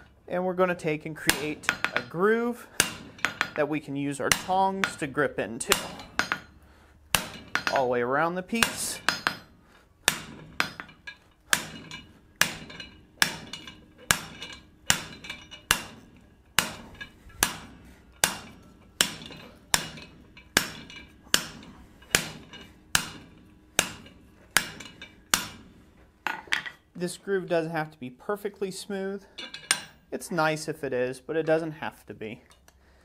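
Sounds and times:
hammer striking metal die: 0:02.8 - 0:03.6, 0:04.2 - 0:06.5, 0:08.5 - 0:09.5, 0:10.1 - 0:25.7.

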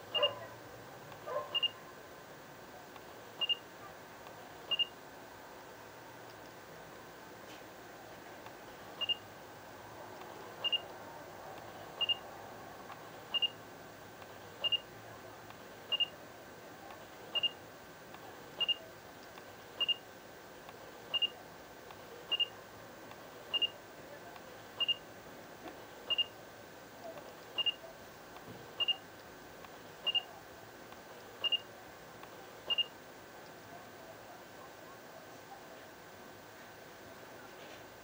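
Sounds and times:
camera focus beep: 0:01.5 - 0:01.8, 0:03.4 - 0:03.6, 0:04.7 - 0:05.0, 0:09.0 - 0:09.2, 0:10.6 - 0:10.9, 0:12.0 - 0:12.2, 0:13.3 - 0:13.6, 0:14.6 - 0:14.9, 0:15.9 - 0:16.2, 0:17.3 - 0:17.6, 0:18.6 - 0:18.8, 0:19.8 - 0:20.0, 0:21.1 - 0:21.4, 0:22.3 - 0:22.6, 0:23.5 - 0:23.8, 0:24.8 - 0:25.0, 0:26.1 - 0:26.3, 0:27.6 - 0:27.8, 0:28.8 - 0:29.0, 0:30.0 - 0:30.3, 0:31.4 - 0:31.7, 0:32.7 - 0:32.9.

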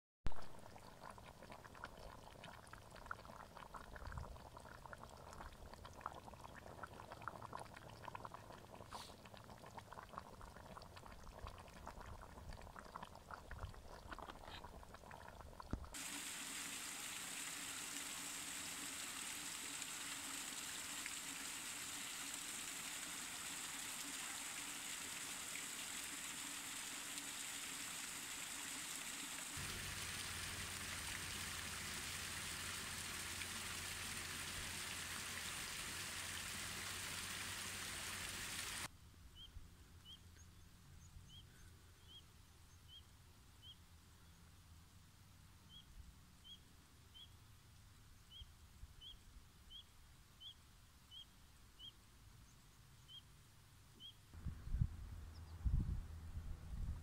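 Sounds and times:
pot of broth bubbling: 0:00.3 - 0:26.2
waterfall splashing over rocks: 0:16.0 - 0:38.9.

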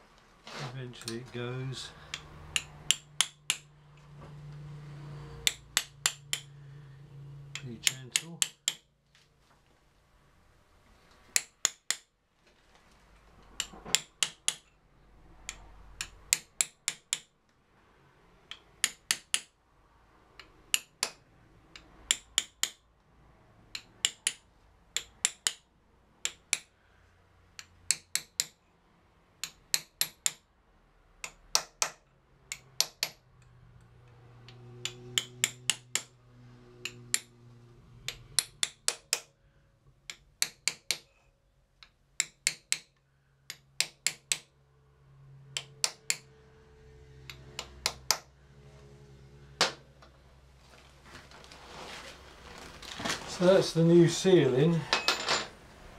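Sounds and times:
hammer tapping on metal: 0:02.1 - 0:03.7, 0:05.4 - 0:06.6, 0:07.5 - 0:08.9, 0:13.6 - 0:14.7, 0:15.4 - 0:17.3, 0:18.5 - 0:19.5, 0:20.4 - 0:22.8, 0:25.0 - 0:26.7, 0:31.2 - 0:33.2, 0:34.4 - 0:36.1, 0:38.0 - 0:39.3, 0:42.2 - 0:44.5, 0:45.6 - 0:46.3, 0:47.3 - 0:48.3.

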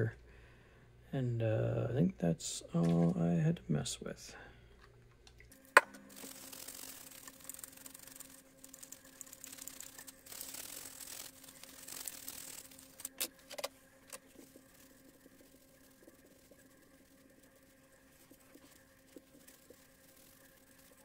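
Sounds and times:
faint steady hum: 0:00.0 - 0:21.0
brush scrubbing circuit board: 0:06.1 - 0:21.0
quiet wiping: 0:14.2 - 0:21.0.

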